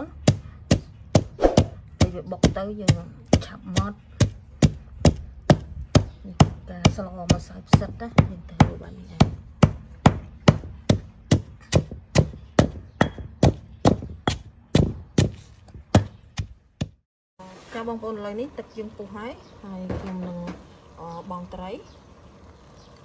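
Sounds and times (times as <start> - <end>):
pestle pounding in stone mortar: 0.1 - 17.0.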